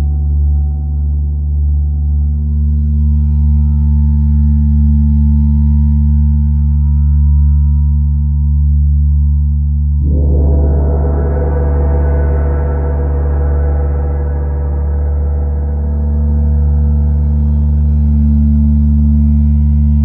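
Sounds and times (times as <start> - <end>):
deep gong drone: 9.9 - 20.0
gong struck with ringing overtones: 10.0 - 17.4.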